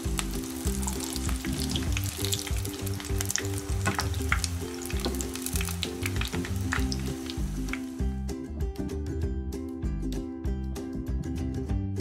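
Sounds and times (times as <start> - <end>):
frying sizzle with crackles: 0.0 - 8.1
background music: 0.0 - 12.0.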